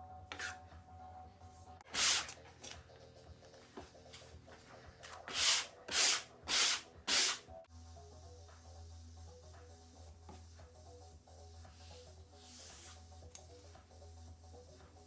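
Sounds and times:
sanding block rubbing paper: 5.3 - 7.4.

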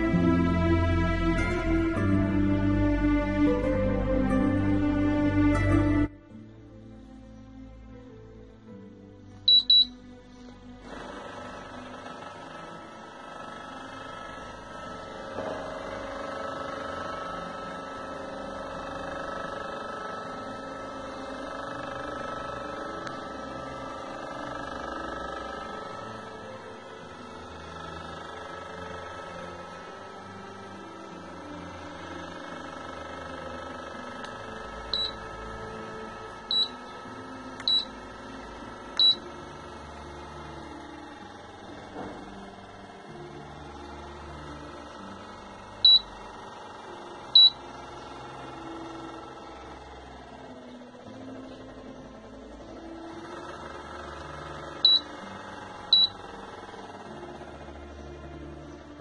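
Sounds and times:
air conditioner motor hum: 0.0 - 59.0
short high beeps: 9.5 - 10.0, 35.0 - 35.2, 36.5 - 36.8, 37.7 - 37.9, 39.0 - 39.2, 47.4 - 47.6.

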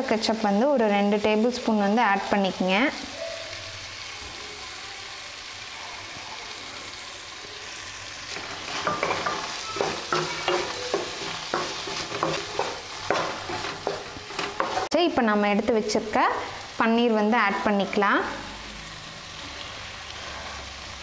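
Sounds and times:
vegetables sizzling in a pan: 0.0 - 21.0
wooden spatula scraping a pan: 8.2 - 15.0, 20.1 - 20.8.

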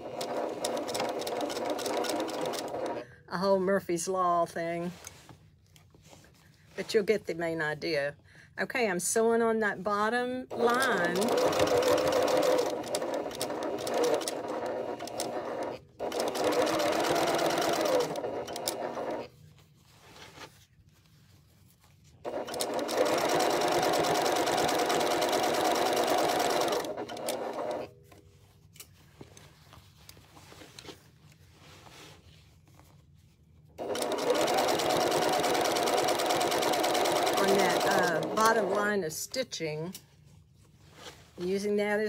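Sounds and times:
sewing machine stitching denim: 0.0 - 3.0, 10.5 - 19.3, 22.2 - 27.9, 33.8 - 38.9.

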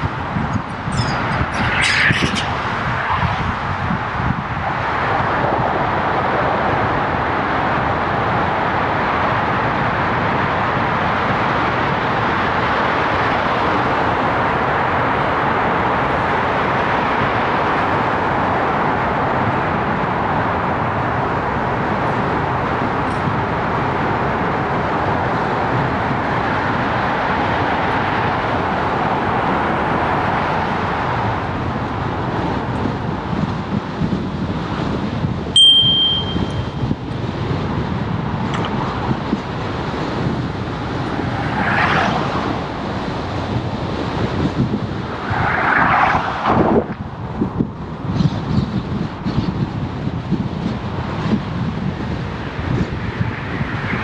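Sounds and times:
rushing wind: 0.0 - 54.0
bicycle tyre noise: 39.6 - 48.2.

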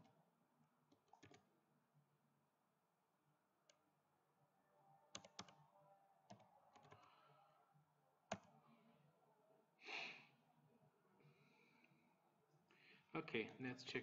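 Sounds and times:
computer keyboard and mouse clicks: 0.9 - 1.5, 5.1 - 5.6, 6.3 - 7.1, 8.3 - 8.5.

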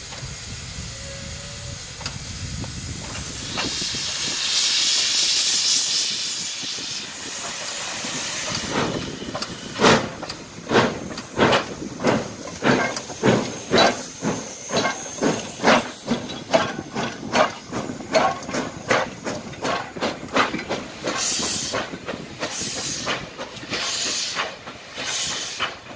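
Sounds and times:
steam hissing: 0.0 - 25.9
locomotive exhaust chuffs: 6.1 - 25.9.

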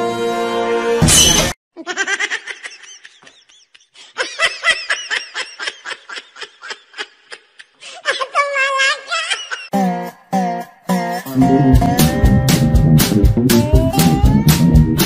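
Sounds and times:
high-pitched giggling laugh: 1.8 - 9.8
held music chord: 11.2 - 15.0.

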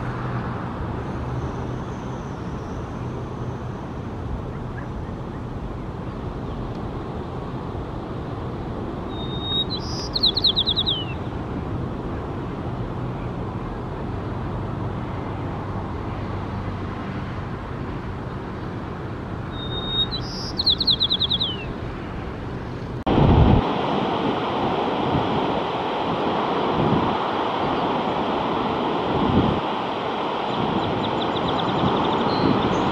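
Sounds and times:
sparrow singing: 9.1 - 11.4, 19.5 - 21.8, 30.5 - 32.9.

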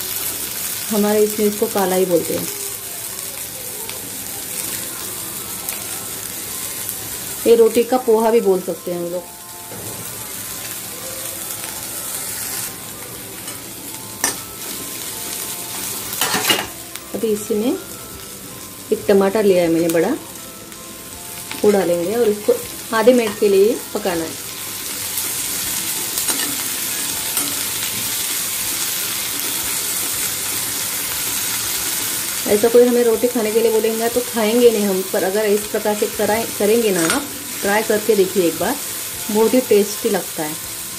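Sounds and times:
food sizzling in oil: 0.0 - 40.9.

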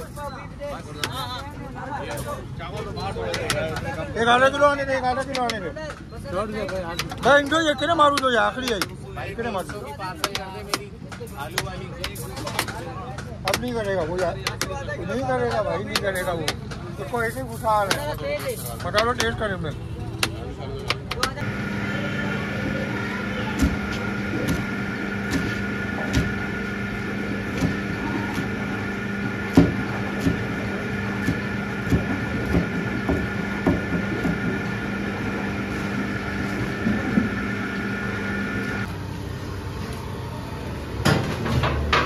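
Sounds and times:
mechanical hum with tones: 21.3 - 42.0.

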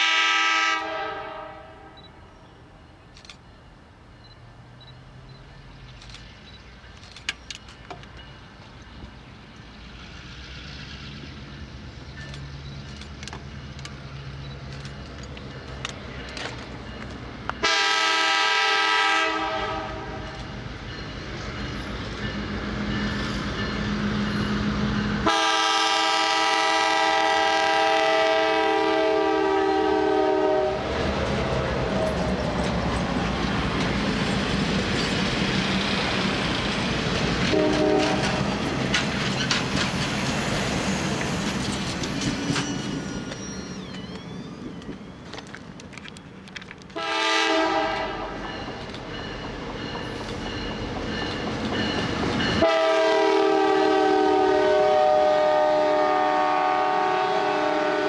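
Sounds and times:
locomotive air horn blasts: 0.0 - 2.0, 17.6 - 20.2, 25.2 - 30.9, 37.5 - 38.4, 47.0 - 48.4, 52.6 - 58.0
train wheels clicking over rails: 3.0 - 17.8, 30.8 - 52.7.

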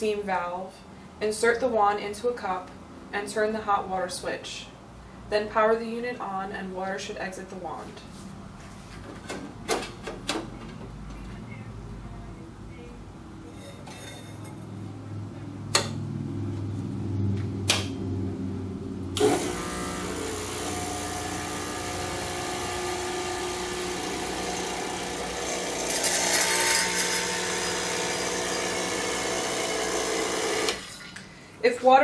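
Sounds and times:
pump buzzing: 19.2 - 31.1.

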